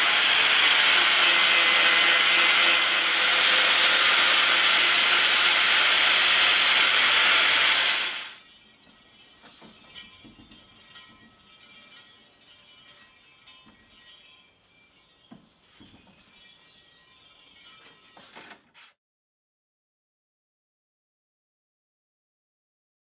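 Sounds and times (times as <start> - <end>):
metallic clinks of roll bender: 8.3 - 18.9.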